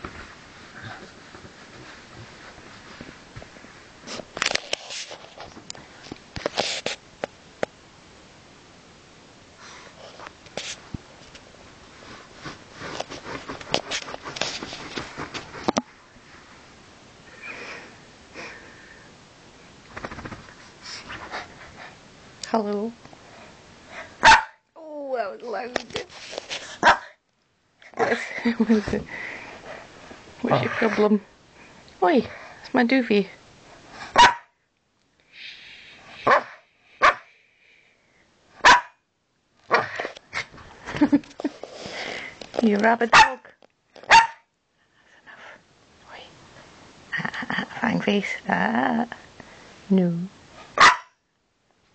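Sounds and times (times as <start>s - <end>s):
dog bed rustling: 0.0s - 7.0s
small dog barking: 24.2s - 24.6s, 26.8s - 27.1s, 34.1s - 34.5s, 36.2s - 37.3s, 38.6s - 39.0s, 43.1s - 43.4s, 44.1s - 44.5s, 50.8s - 51.2s.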